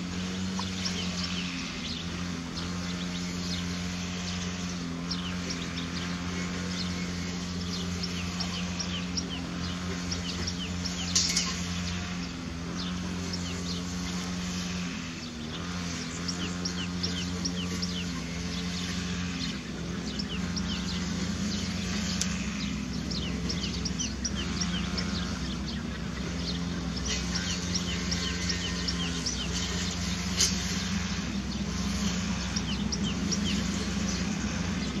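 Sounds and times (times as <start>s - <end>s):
low motor-like hum: 0.0s - 35.0s
small birds chirping: 0.0s - 35.0s.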